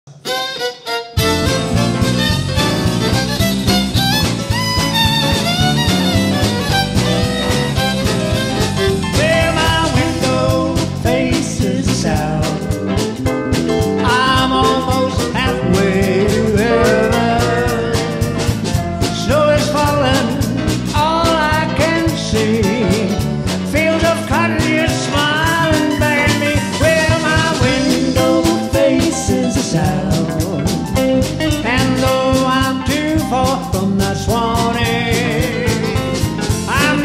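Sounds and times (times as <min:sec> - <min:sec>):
western swing band playing: 0:00.1 - 0:37.0
man singing: 0:09.0 - 0:13.1, 0:14.0 - 0:37.0.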